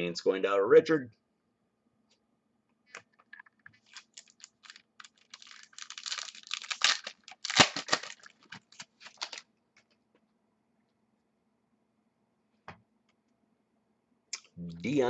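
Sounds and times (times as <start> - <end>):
foil wrapper crinkling: 3.7 - 9.5.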